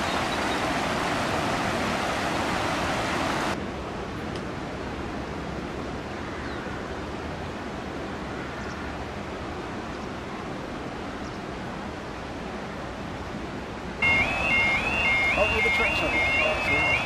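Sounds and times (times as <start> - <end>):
floodwater rushing: 0.0 - 3.6, 12.8 - 17.0.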